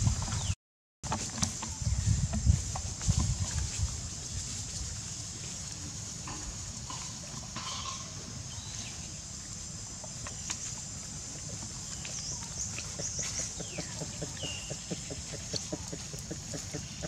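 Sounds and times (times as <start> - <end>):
bird chirps: 11.9 - 17.0.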